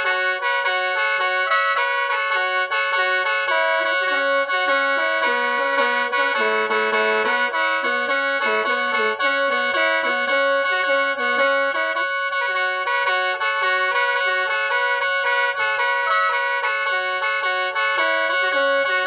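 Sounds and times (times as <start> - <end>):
mouth organ melody with drone: 2.7 - 14.6.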